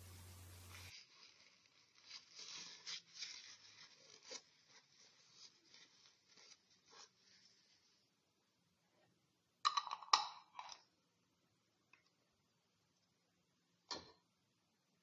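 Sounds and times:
paper towel wiping glass jar: 0.0 - 8.0.

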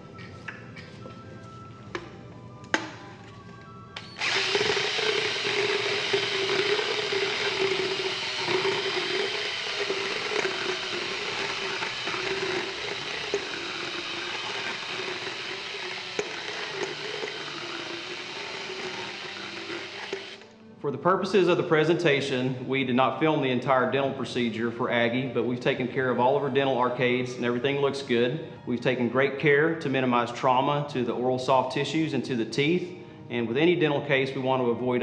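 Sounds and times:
power tool grinding teeth: 4.0 - 20.6.

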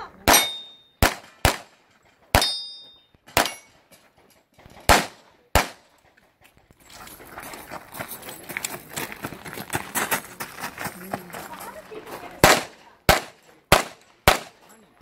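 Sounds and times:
pistol shots: 0.2 - 2.7, 3.3 - 3.7, 4.9 - 5.9, 12.4 - 14.6
steel target ringing: 0.3 - 1.0, 2.4 - 3.8
footsteps crunching on gravel: 6.3 - 12.4.

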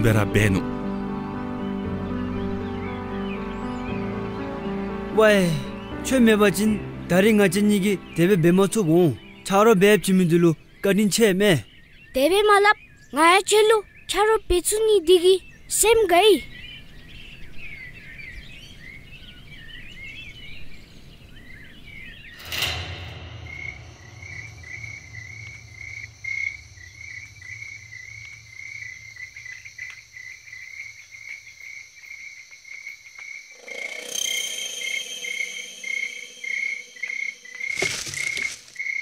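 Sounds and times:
birds chirping: 0.0 - 32.2, 32.8 - 39.0
crickets chirping: 22.4 - 39.0
steady high tones: 33.6 - 37.7.

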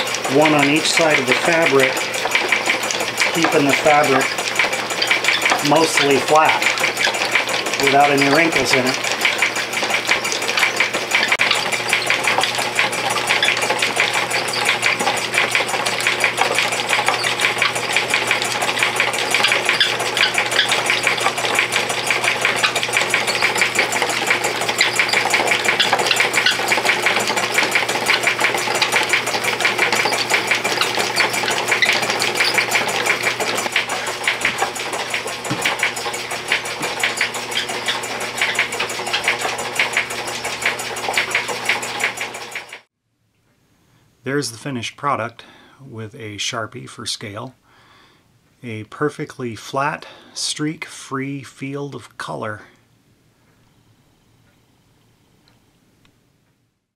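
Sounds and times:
machine rattling with rapid clicks: 0.0 - 42.9.

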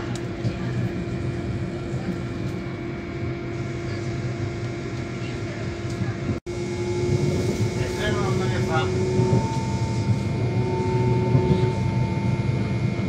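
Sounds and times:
train rumbling and humming: 0.0 - 13.0.

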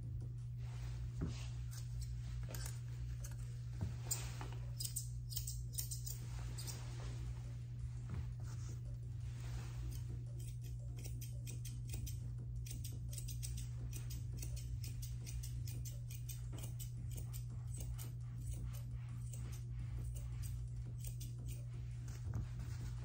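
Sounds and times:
steady low hum: 0.0 - 23.0
grooming shears snipping: 9.8 - 22.3.

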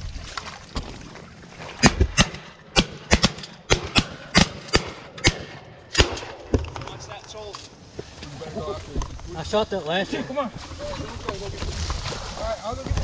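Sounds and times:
shotgun fire: 1.8 - 7.0.

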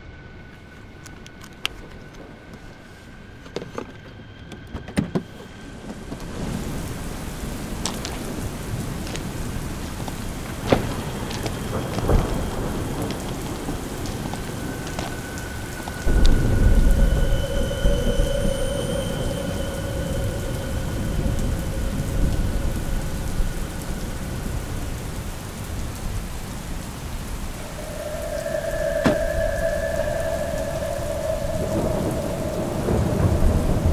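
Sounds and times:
steady rain falling: 0.0 - 3.9, 5.3 - 33.9
deep rumble of thunder: 6.3 - 33.9.

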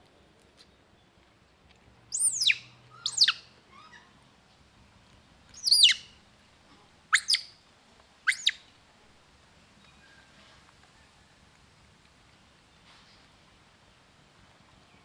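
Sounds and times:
high-pitched animal calls: 2.1 - 4.1, 5.6 - 6.1, 7.1 - 7.5, 8.3 - 8.6.

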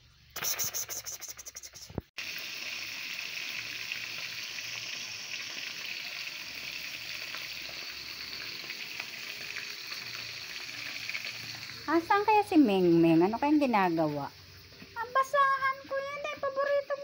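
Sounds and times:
fish sizzling in hot oil: 2.2 - 17.0.

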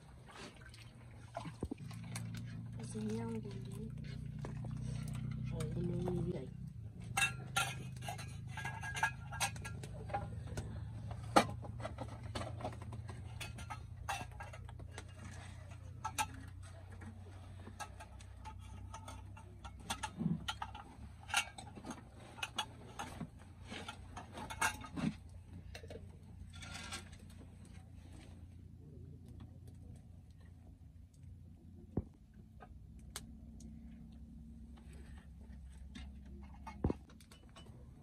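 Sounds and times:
mugs and metal pots knocking: 1.4 - 17.1, 17.7 - 27.1.

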